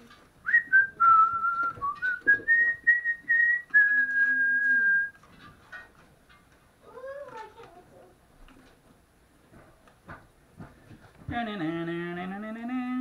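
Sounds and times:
person whistling a tune: 0:00.4 - 0:05.2.

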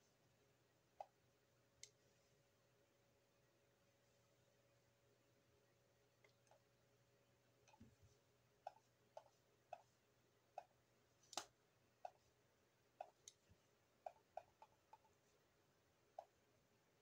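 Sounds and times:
computer mouse clicks: 0:11.3 - 0:12.2.

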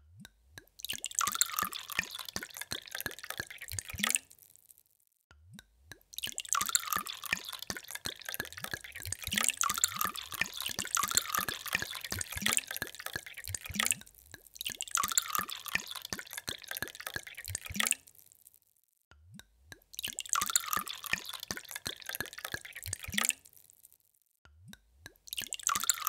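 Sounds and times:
water pouring into a glass: 0:00.6 - 0:04.5, 0:05.9 - 0:18.2, 0:20.0 - 0:23.7, 0:25.1 - 0:26.0.

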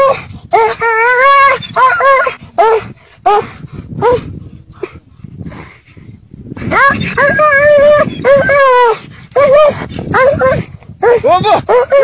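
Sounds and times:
dog yelping and whining: 0:00.0 - 0:03.4, 0:06.7 - 0:12.0.

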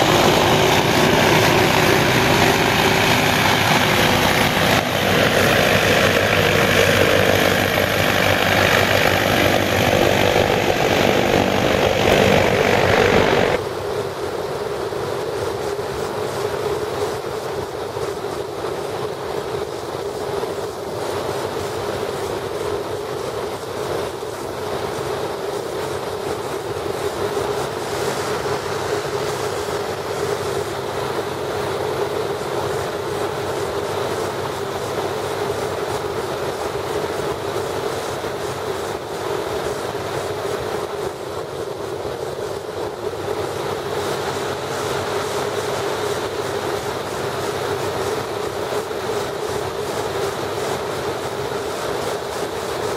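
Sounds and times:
hovercraft engine droning: 0:00.0 - 0:13.6
hovercraft engine and propeller drone: 0:00.0 - 0:52.9.

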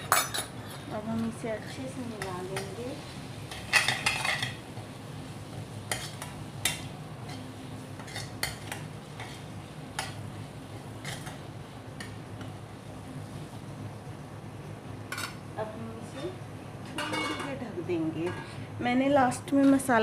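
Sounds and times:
metal spoon stirring in pan: 0:00.0 - 0:04.9, 0:05.5 - 0:11.4.

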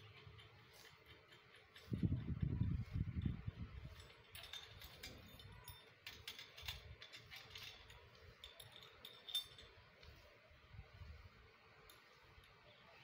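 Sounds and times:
metal bracket clicks and clinks: 0:03.0 - 0:10.1.

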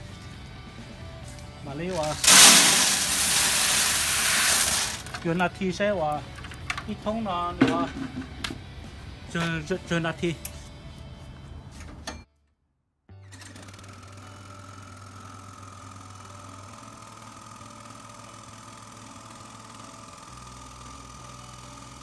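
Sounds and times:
grinder motor humming and whining: 0:01.9 - 0:05.3, 0:13.6 - 0:22.0.

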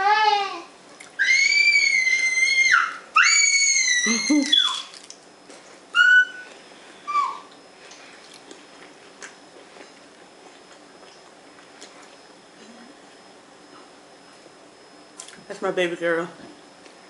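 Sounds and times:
child squealing: 0:00.0 - 0:05.0, 0:06.0 - 0:06.5, 0:07.1 - 0:07.5
crunchy chewing: 0:04.5 - 0:14.4.

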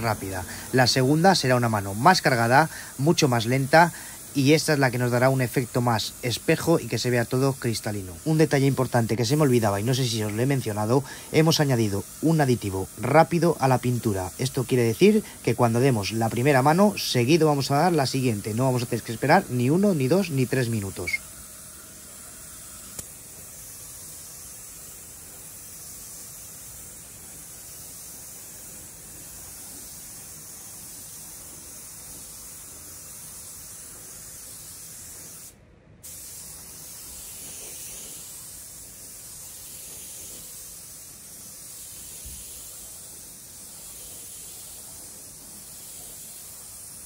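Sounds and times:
spray gun hissing: 0:00.0 - 0:47.0.

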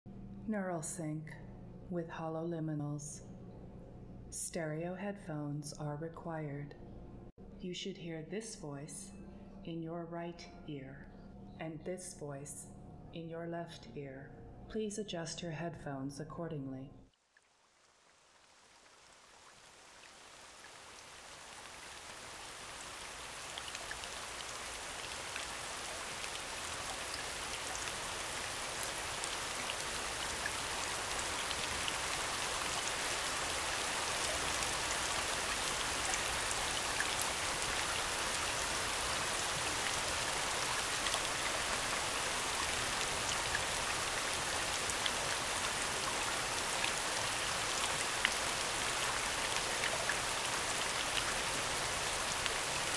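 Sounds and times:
rain hissing: 0:17.9 - 0:52.9.

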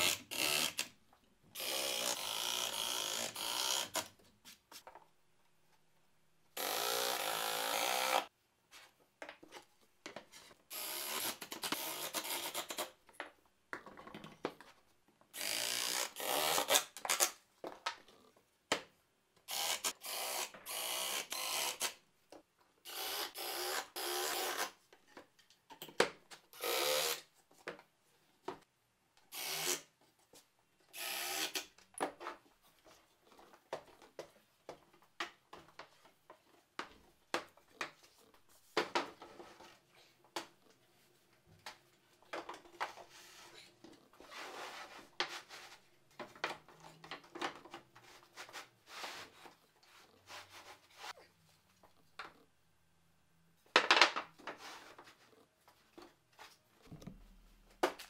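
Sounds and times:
cordless drill driving screws: 0:31.0 - 0:31.6.

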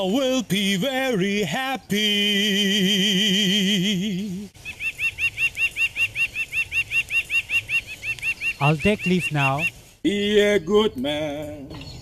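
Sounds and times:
man singing with vibrato: 0:00.0 - 0:04.6, 0:10.0 - 0:12.0
high bird chirp: 0:04.6 - 0:12.0.

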